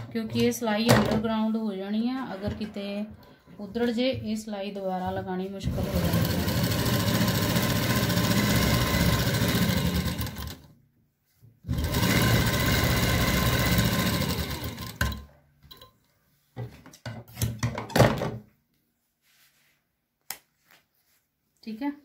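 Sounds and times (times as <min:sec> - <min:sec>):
sewing machine stitching: 0:05.6 - 0:10.7, 0:11.6 - 0:15.3.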